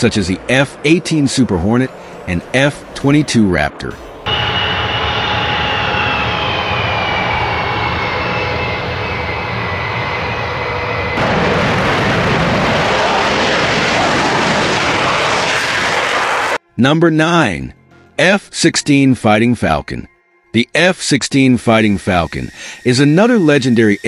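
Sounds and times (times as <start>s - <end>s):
jet engines whining: 0.0s - 16.6s, 21.3s - 24.0s
jet taking off: 0.0s - 16.6s, 21.7s - 24.0s.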